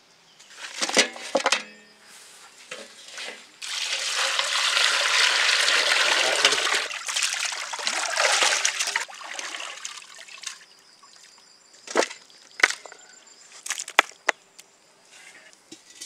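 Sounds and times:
liquid pouring: 3.6 - 10.3.

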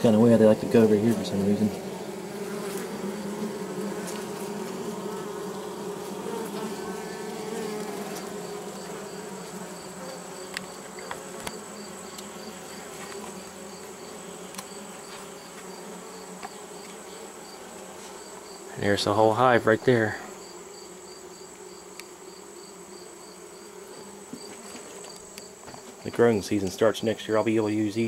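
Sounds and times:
bees buzzing: 0.0 - 28.0
faint ticks: 21.9 - 22.1.

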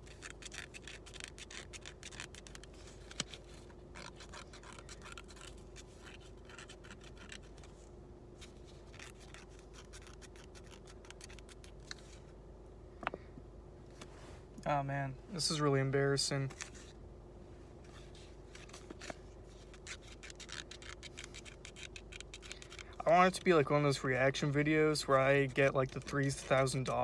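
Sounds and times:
scraping lottery ticket coating: 0.0 - 7.8, 8.7 - 11.9, 18.6 - 23.4
faint steady hum: 0.0 - 27.0.

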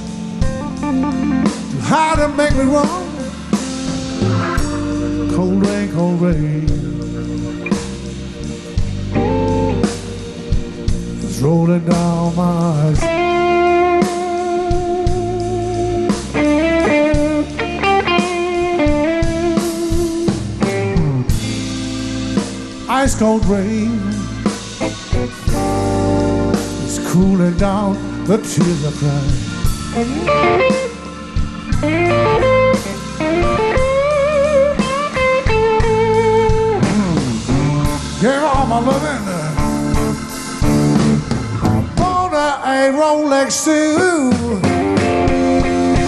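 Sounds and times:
lead electric guitar bending notes: 0.0 - 46.0
live blues band playing: 0.0 - 46.0
person singing: 1.6 - 3.6, 4.2 - 7.2, 11.3 - 15.7, 22.9 - 24.5, 26.8 - 30.8, 37.8 - 40.3, 41.9 - 45.2.

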